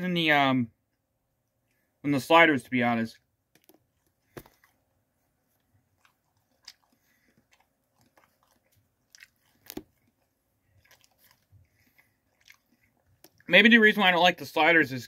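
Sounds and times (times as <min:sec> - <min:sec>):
faint chewing: 0:03.5 - 0:13.7
food crunching: 0:03.5 - 0:13.7.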